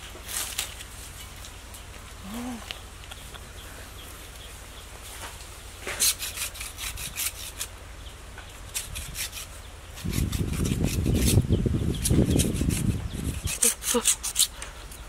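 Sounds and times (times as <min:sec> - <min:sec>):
vine rubbing: 0:00.0 - 0:15.0
vine strand being scraped: 0:05.1 - 0:07.8, 0:08.6 - 0:15.0.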